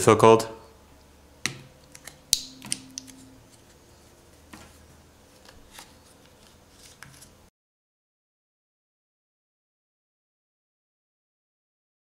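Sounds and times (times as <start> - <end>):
pry tool clicks and snaps: 1.9 - 3.2.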